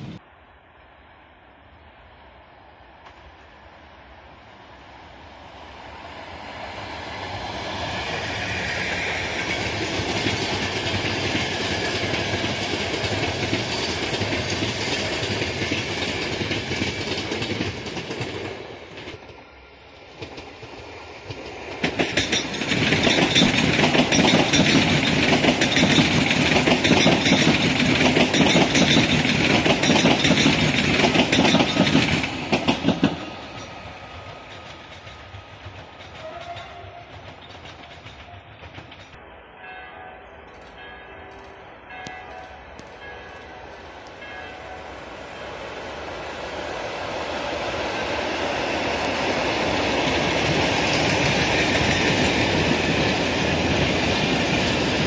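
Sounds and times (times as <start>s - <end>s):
electric train passing: 0.0s - 55.0s
high-speed train passing close: 0.0s - 55.0s
wheels clattering over rail joints: 20.2s - 39.2s.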